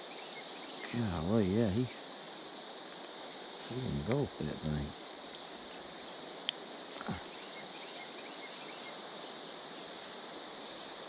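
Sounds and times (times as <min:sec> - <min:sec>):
cicada chorus drone: 0:00.0 - 0:11.0.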